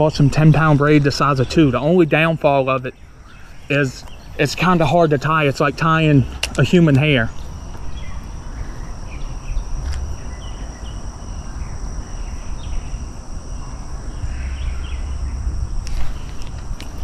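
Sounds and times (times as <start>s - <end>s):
insects droning: 0.0s - 17.0s
low rumble: 13.4s - 17.0s
bird chirps: 14.0s - 16.2s.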